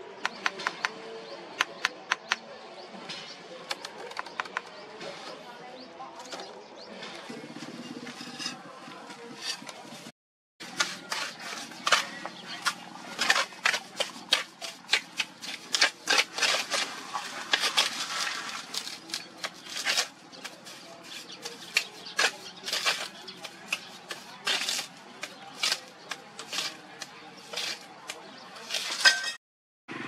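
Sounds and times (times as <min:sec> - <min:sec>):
trowel scraping mortar and brick: 0:07.4 - 0:29.4.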